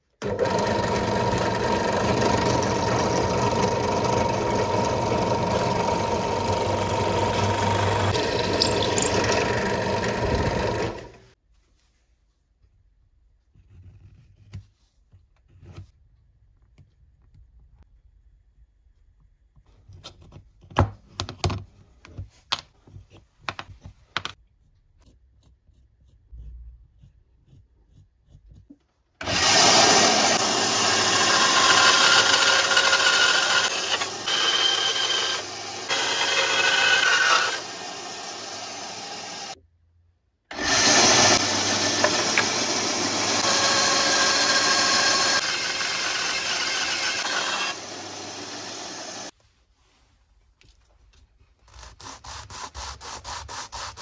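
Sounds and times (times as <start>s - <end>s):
band saw cutting wood: 0.2s - 11.4s, 29.2s - 39.6s, 40.5s - 49.3s.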